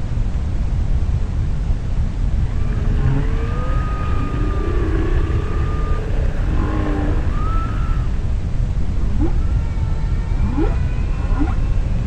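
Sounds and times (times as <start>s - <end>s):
steady low rumble: 0.0s - 12.0s
humpback whale song underwater: 2.6s - 8.3s, 8.9s - 12.0s.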